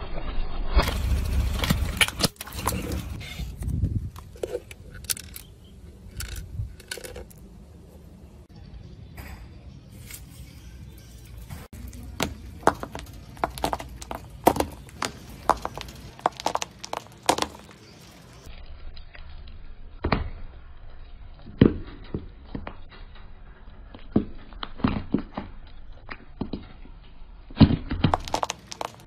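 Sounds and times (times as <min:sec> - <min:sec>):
incense cones cracking under tyre: 0:11.7 - 0:29.0.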